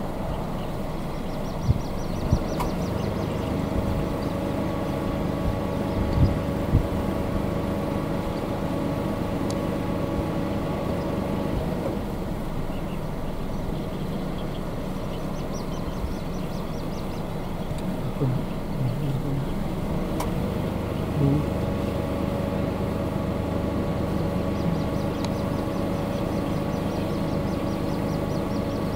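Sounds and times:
low outdoor rumble: 0.0s - 28.9s
steady engine hum: 0.0s - 28.9s
faint high bird peeps: 0.3s - 4.4s, 5.8s - 6.5s, 12.7s - 19.6s, 24.0s - 28.9s.

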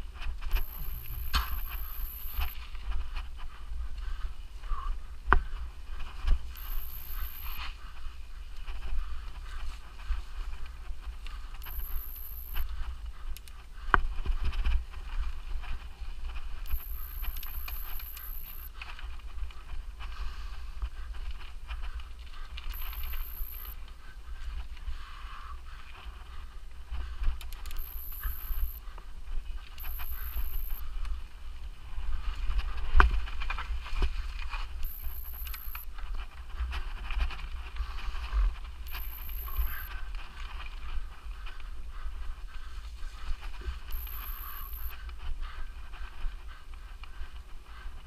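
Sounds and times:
faint high-pitched tone: 0.5s - 2.6s, 11.6s - 12.7s, 16.7s - 18.7s, 22.7s - 23.8s, 27.8s - 28.8s, 29.8s - 30.8s, 34.8s - 35.8s, 38.9s - 39.9s, 43.9s - 44.9s.

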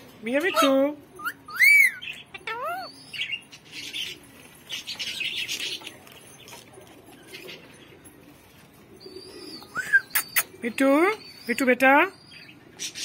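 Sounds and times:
parakeet raspy chatter: 0.4s - 2.9s
parakeet whistled call: 1.2s - 3.2s.

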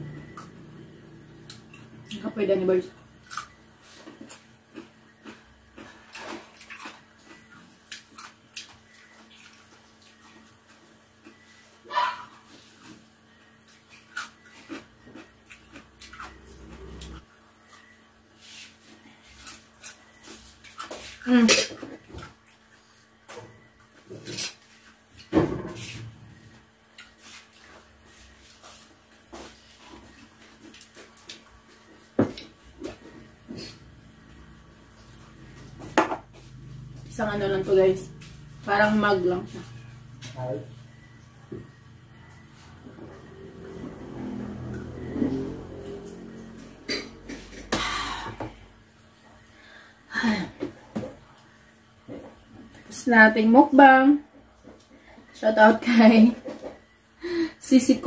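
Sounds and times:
wet chewing and biting: 3.2s - 11.6s, 13.6s - 18.0s.

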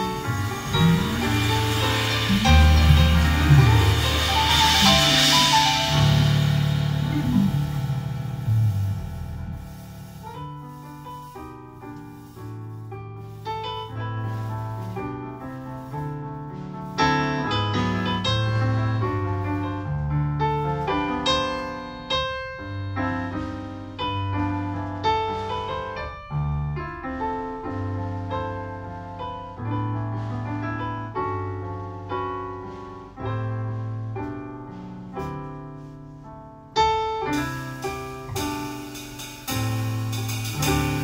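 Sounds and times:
held low bass notes: 0.0s - 11.4s
electric keyboard piano chords: 0.0s - 12.3s, 13.0s - 41.0s.

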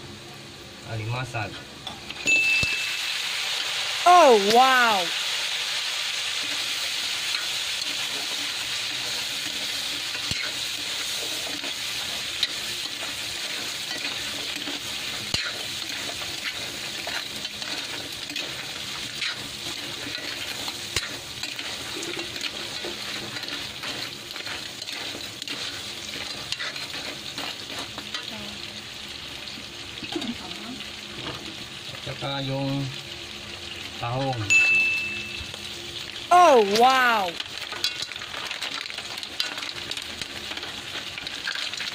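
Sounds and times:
crabs sizzling in a wok: 0.0s - 41.9s.

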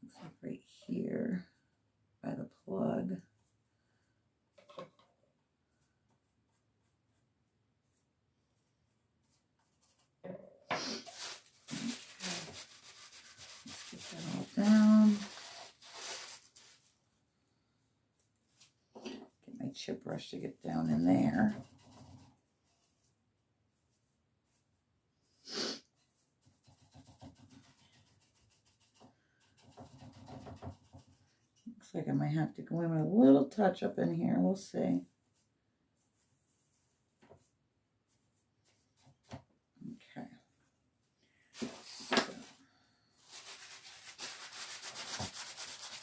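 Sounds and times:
rubbing and brushing strokes: 5.7s - 17.0s, 20.4s - 31.7s, 35.0s - 39.5s, 41.5s - 42.6s, 43.2s - 46.0s.

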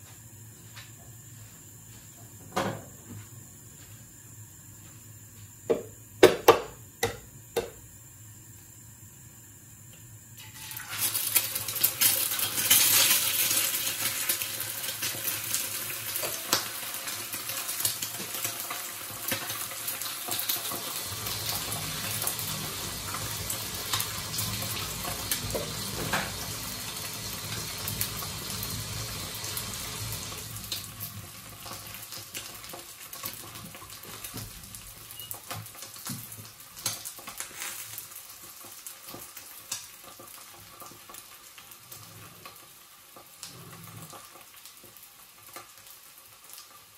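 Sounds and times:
food sizzling in frying pan: 9.6s - 46.9s.

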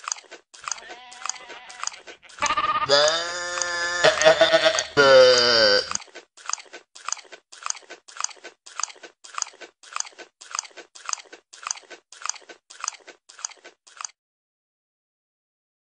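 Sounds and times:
crunchy chewing: 0.0s - 14.2s
animal bleating: 0.7s - 6.0s.

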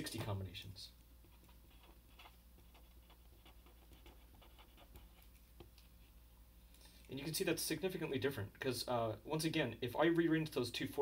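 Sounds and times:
marker scratching on paper: 1.2s - 6.2s.

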